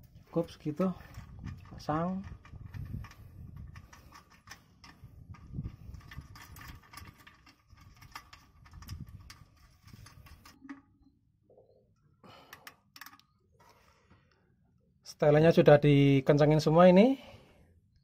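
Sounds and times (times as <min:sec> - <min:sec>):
hand tools clicking and knocking: 0:01.0 - 0:10.8.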